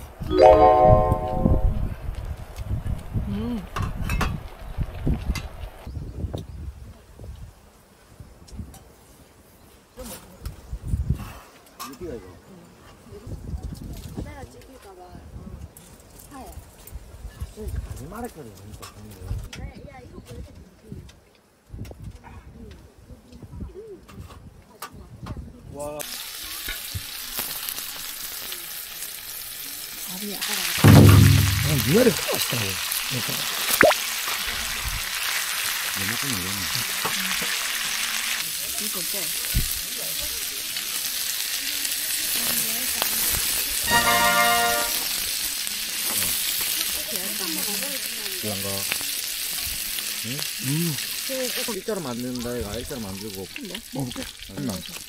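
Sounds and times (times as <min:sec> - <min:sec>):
background music: 0:00.3 - 0:01.8
food sizzling in a pan: 0:26.0 - 0:55.0.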